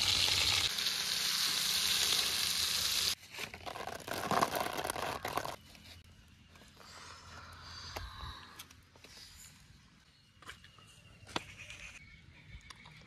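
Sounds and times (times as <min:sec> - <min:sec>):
fish sizzling in a pan: 0:00.0 - 0:03.2.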